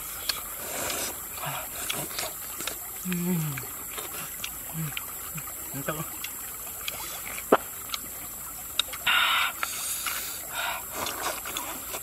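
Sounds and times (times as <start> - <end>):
mouth eating sounds: 0.3 - 8.1.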